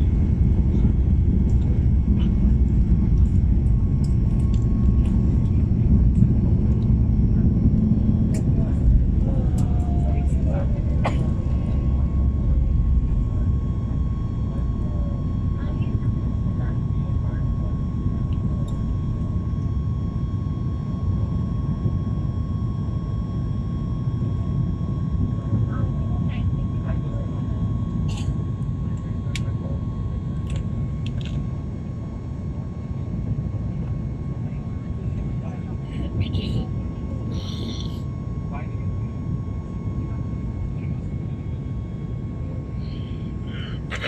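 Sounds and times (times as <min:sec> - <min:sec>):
jet engine roar and rumble: 0:00.0 - 0:44.0
thin steady whine: 0:00.0 - 0:44.0.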